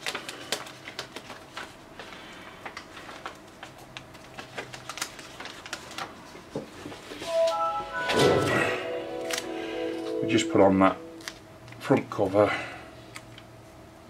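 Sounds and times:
low steady hum: 7.3s - 12.0s.

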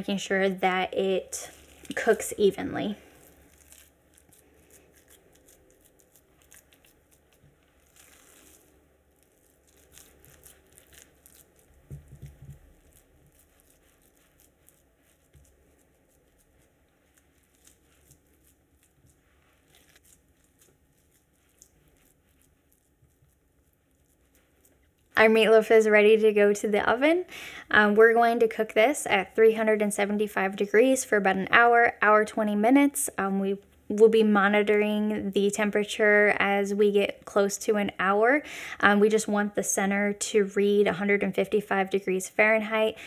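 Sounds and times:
hands pressing meat mixture: 3.0s - 25.1s.

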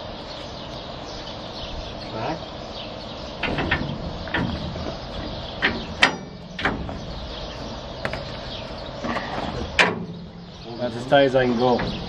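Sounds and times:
steady low hum: 0.0s - 12.0s
sharp clicks and knocks on metal: 3.4s - 7.2s, 9.8s - 10.3s.

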